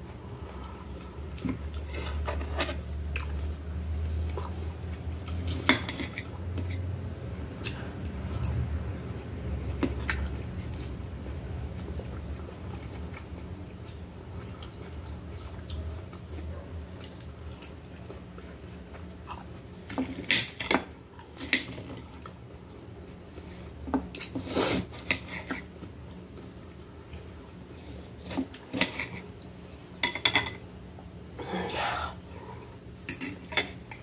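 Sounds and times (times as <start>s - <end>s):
chewing: 12.0s - 19.6s.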